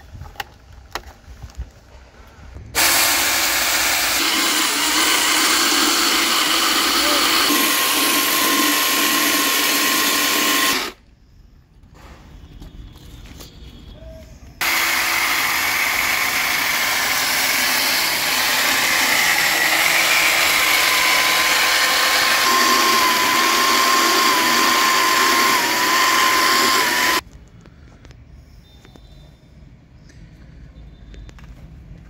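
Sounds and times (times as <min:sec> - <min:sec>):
saw cutting wood: 0:02.8 - 0:11.0, 0:14.6 - 0:27.2.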